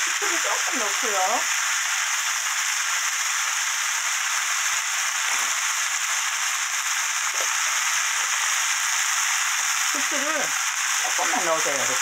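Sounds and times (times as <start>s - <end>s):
food sizzling in oil: 0.0s - 12.0s.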